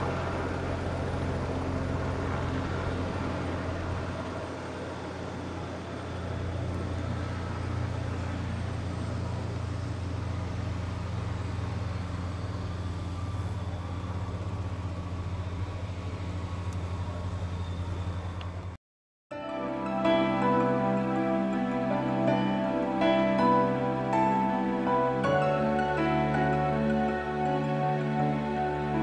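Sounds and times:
helicopter engine and rotor drone: 0:00.0 - 0:18.8, 0:19.5 - 0:29.0
music: 0:19.3 - 0:29.0.

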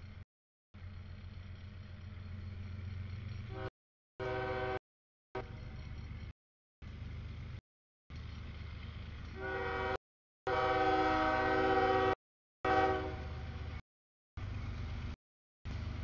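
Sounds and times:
train air horn: 0:03.5 - 0:04.8, 0:09.4 - 0:13.4.

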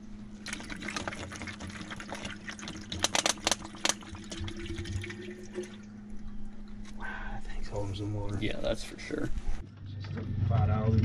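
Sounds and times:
water glugging from plastic bottle: 0:00.4 - 0:05.9.

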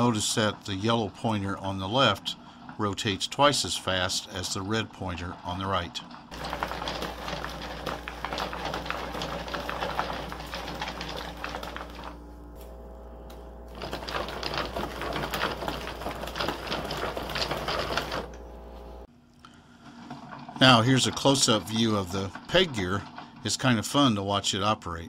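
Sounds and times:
wooden gears clicking: 0:05.4 - 0:12.2, 0:13.7 - 0:18.3.

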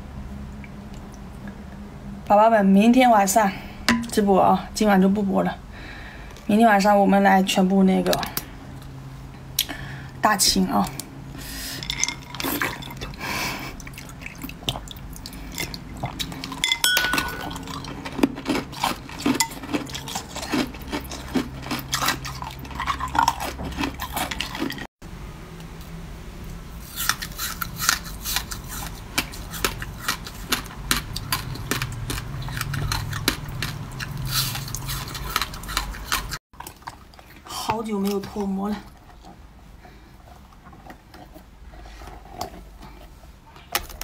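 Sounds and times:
ice clinking against glass bowl: 0:11.8 - 0:13.0, 0:16.4 - 0:17.9
crunching of bitten ice: 0:16.2 - 0:24.9, 0:26.9 - 0:36.8.

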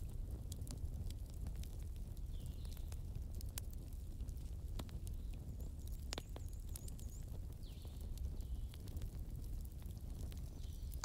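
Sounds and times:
small birds chirping: 0:05.1 - 0:08.9.

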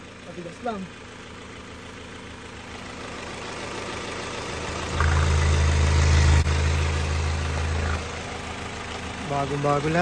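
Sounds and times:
car engine idling: 0:00.0 - 0:10.0
deep steady hum: 0:03.0 - 0:09.6.

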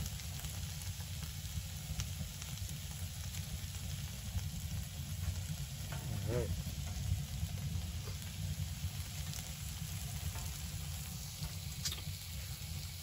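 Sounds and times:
food sizzling on a griddle: 0:00.0 - 0:13.0
steady low rumble: 0:03.4 - 0:13.0.

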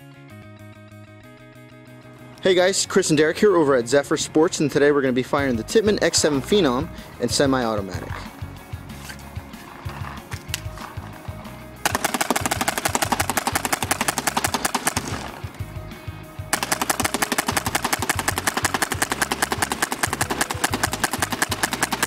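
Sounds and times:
paintball gun firing rapid pops: 0:11.8 - 0:15.4, 0:16.5 - 0:22.0.

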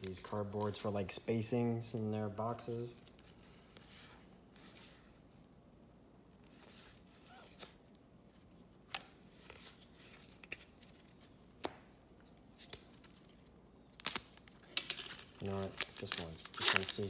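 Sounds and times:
trading cards rustling: 0:00.0 - 0:01.1, 0:09.3 - 0:17.0.

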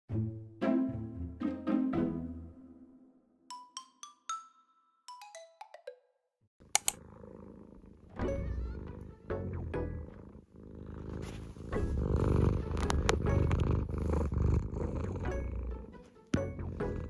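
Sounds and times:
sharp clicks: 0:06.8 - 0:07.0
cat purring: 0:06.9 - 0:17.0
cat sniffing: 0:10.6 - 0:16.2.

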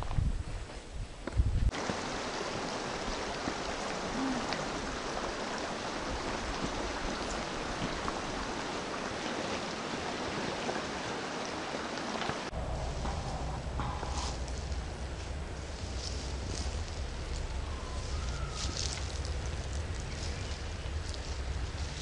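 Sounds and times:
stream water rushing: 0:01.7 - 0:22.0
low thumps: 0:12.5 - 0:17.7.

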